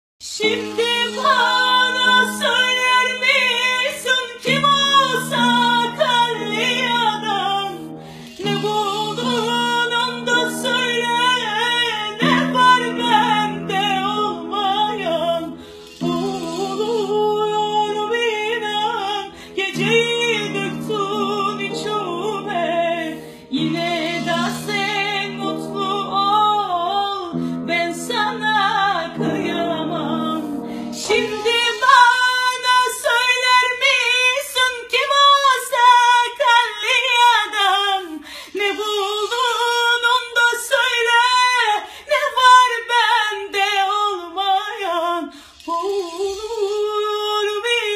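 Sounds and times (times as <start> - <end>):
woman singing ornamented melody: 0.2 - 47.9
held instrumental chords: 0.4 - 32.5.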